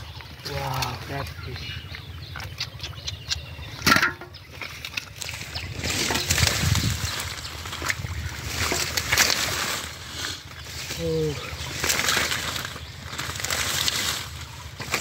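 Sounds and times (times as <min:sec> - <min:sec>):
hands rustling through plant stems: 0:04.5 - 0:15.0
small crackles: 0:04.6 - 0:15.0.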